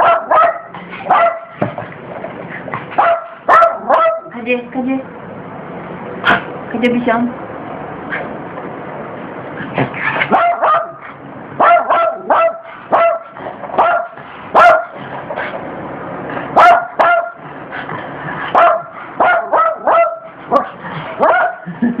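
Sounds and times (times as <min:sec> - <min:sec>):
small dog yapping: 0:00.0 - 0:01.5, 0:02.9 - 0:04.3, 0:09.8 - 0:14.9, 0:16.6 - 0:17.4, 0:18.6 - 0:21.6.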